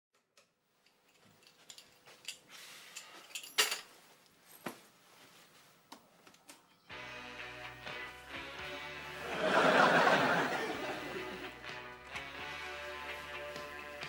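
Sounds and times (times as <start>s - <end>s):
clothing rustling: 0.7s - 6.7s
objects clattering being put down: 1.1s - 4.0s.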